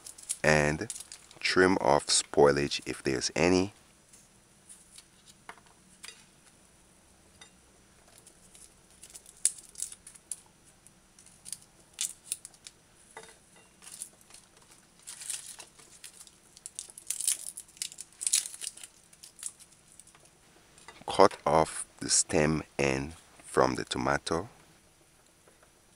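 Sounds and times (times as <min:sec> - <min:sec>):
garlic skins crackling and tearing: 0:00.0 - 0:01.4, 0:08.1 - 0:10.4, 0:11.2 - 0:12.8, 0:13.8 - 0:20.3.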